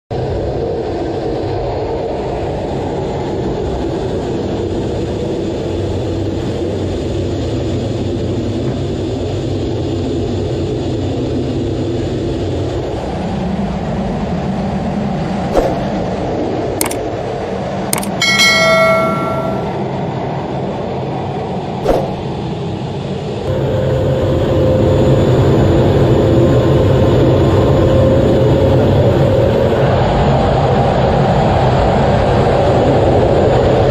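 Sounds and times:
sharp clicks: 16.8s - 17.0s, 18.0s - 18.2s
bell-like notification chime: 18.0s - 19.8s
jet aircraft roar: 21.2s - 33.9s.

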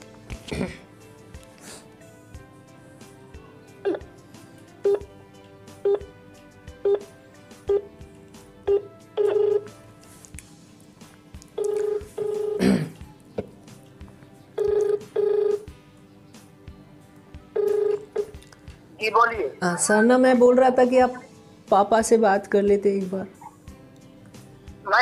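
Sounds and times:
phone ringback tone: 3.8s - 4.1s, 4.8s - 5.1s, 5.8s - 6.1s, 6.8s - 7.1s, 7.7s - 7.9s, 8.7s - 9.8s, 11.6s - 12.6s, 14.6s - 15.7s, 17.6s - 18.4s.

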